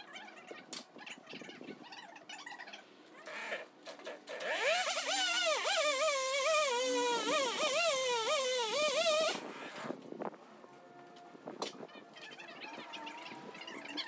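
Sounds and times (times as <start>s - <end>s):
chainsaw cutting wood: 4.3s - 9.5s.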